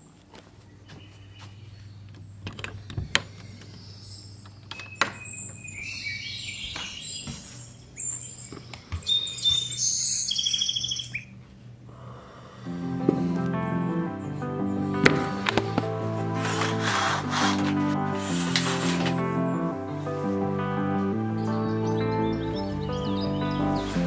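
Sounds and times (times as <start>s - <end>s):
chirping phone alarm: 3.6s - 11.4s.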